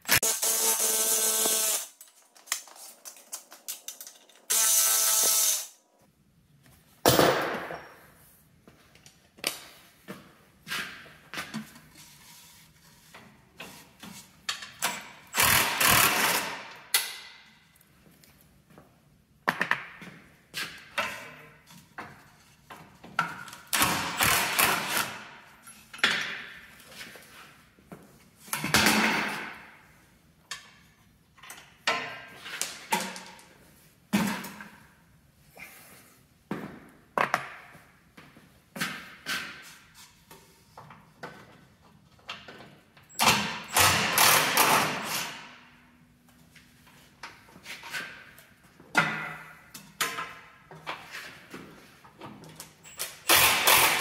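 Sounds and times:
metal tools clinking and rattling: 0:02.0 - 0:04.5.

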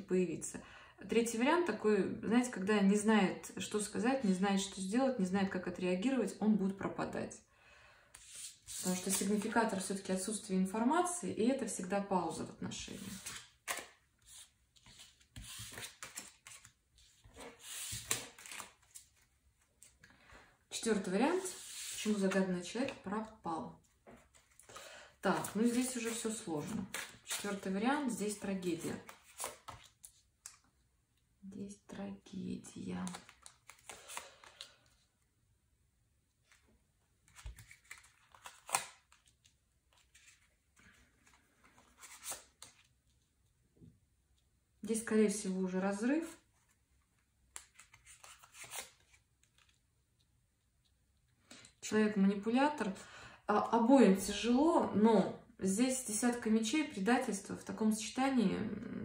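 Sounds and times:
cards scraping on a table: 0:13.0 - 0:18.7.

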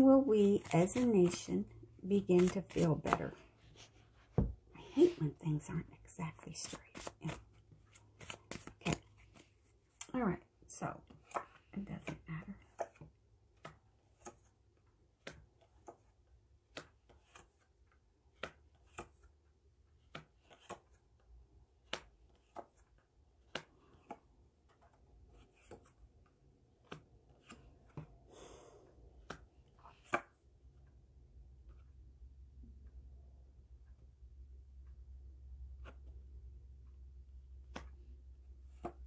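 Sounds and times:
cards clicking and tapping: 0:00.4 - 0:03.3, 0:06.6 - 0:10.2, 0:11.1 - 0:28.2, 0:29.1 - 0:30.4, 0:37.5 - 0:39.0
cards rustling: 0:00.4 - 0:03.5, 0:06.5 - 0:10.1.

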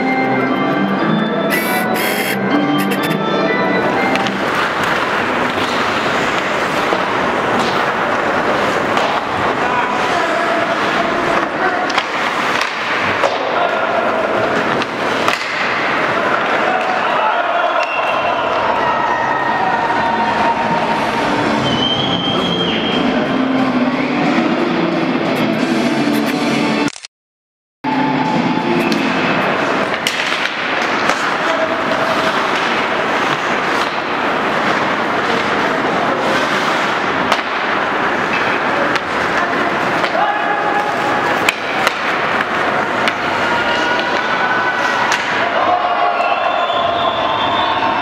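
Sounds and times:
rink crowd din: 0:00.0 - 0:26.9, 0:27.9 - 0:48.0
hockey sticks clacking puck: 0:03.9 - 0:18.3, 0:28.7 - 0:45.7
skate blades scraping ice: 0:04.0 - 0:13.3, 0:28.9 - 0:45.2.

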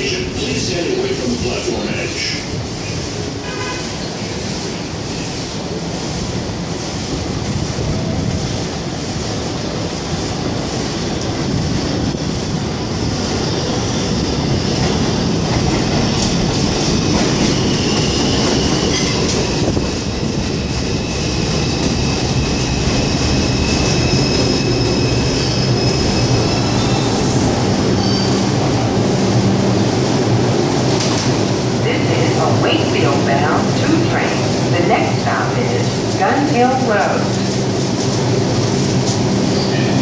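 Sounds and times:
subway train rumble: 0:00.0 - 0:40.0
high brake squeal: 0:27.9 - 0:28.4.

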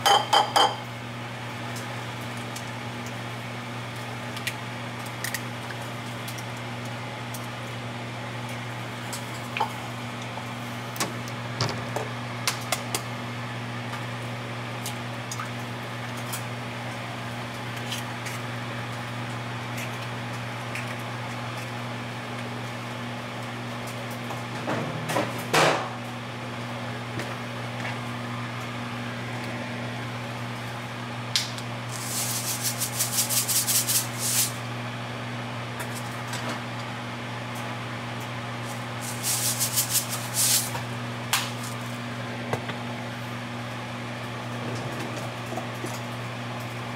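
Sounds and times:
low appliance hum: 0:00.0 - 0:46.9
salt grinder grinding: 0:31.9 - 0:34.6, 0:39.0 - 0:40.8.

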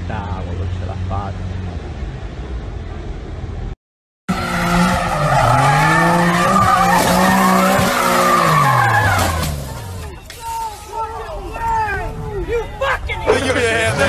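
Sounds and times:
car engine at high revs: 0:04.3 - 0:10.1
tyres squealing: 0:04.9 - 0:14.0.

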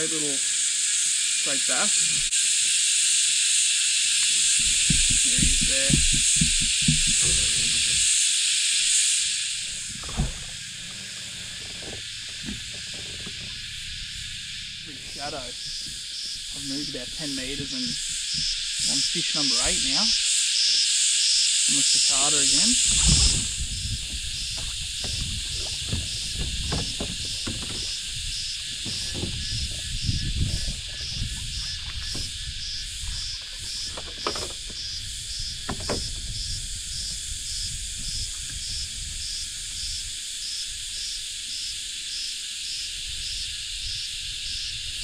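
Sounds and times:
shrill insect chorus: 0:00.0 - 0:45.0
knocks from kayak handling: 0:04.6 - 0:08.0, 0:09.8 - 0:10.6, 0:22.9 - 0:32.4, 0:33.7 - 0:34.9, 0:35.6 - 0:36.3
low rumbling: 0:09.3 - 0:20.2, 0:21.7 - 0:33.3.

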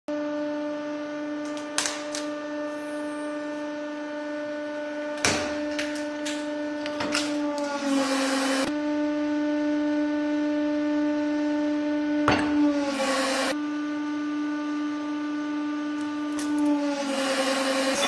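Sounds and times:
hydraulic pump whining: 0:01.4 - 0:08.7, 0:12.3 - 0:13.6, 0:16.0 - 0:18.0.

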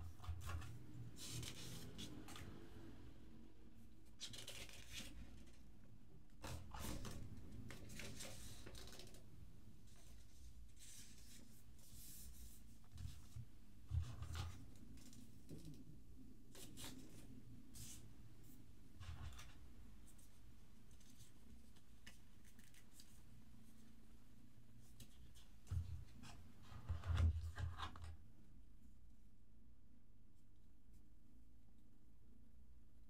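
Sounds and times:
paper rustling and folding: 0:00.0 - 0:02.6, 0:04.0 - 0:05.7, 0:06.4 - 0:15.8, 0:16.5 - 0:18.0, 0:19.0 - 0:23.9.

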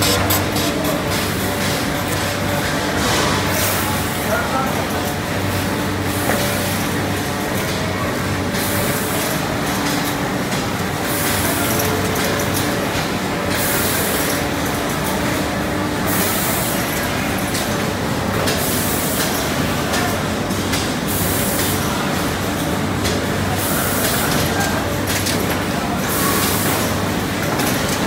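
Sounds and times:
machine hum: 0:00.0 - 0:03.5.

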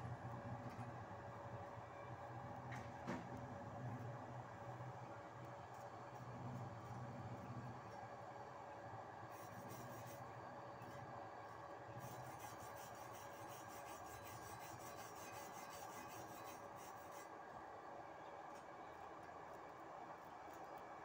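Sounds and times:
wire brush scrubbing steel: 0:12.0 - 0:17.3.

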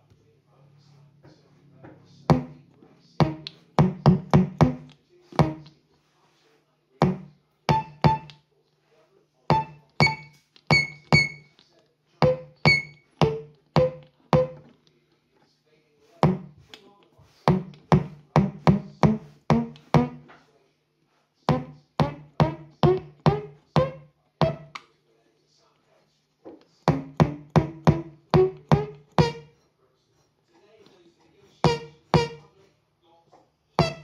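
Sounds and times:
synth drum tones: 0:02.3 - 0:02.6, 0:03.2 - 0:05.7, 0:07.0 - 0:08.3, 0:09.5 - 0:11.5, 0:12.2 - 0:14.7, 0:17.5 - 0:20.3, 0:21.5 - 0:24.7, 0:26.9 - 0:29.5, 0:31.6 - 0:32.4, 0:33.8 - 0:34.0.

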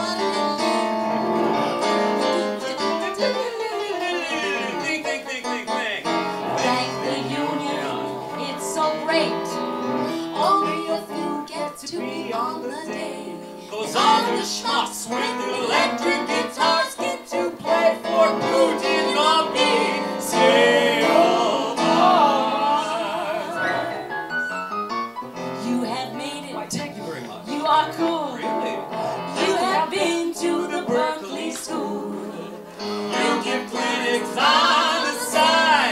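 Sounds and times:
woman singing: 0:00.0 - 0:01.0, 0:02.5 - 0:04.5, 0:06.6 - 0:09.6, 0:10.3 - 0:20.0, 0:25.6 - 0:28.7, 0:29.4 - 0:32.6.

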